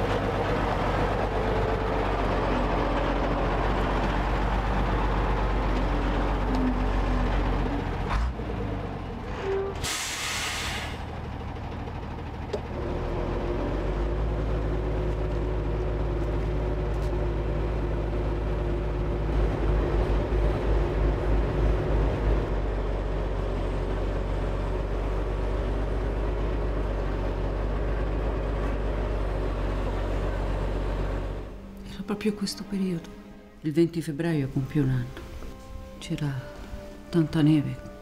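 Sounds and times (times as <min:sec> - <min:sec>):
diesel engine running: 0:00.0 - 0:38.0
brief hiss: 0:09.8 - 0:11.0.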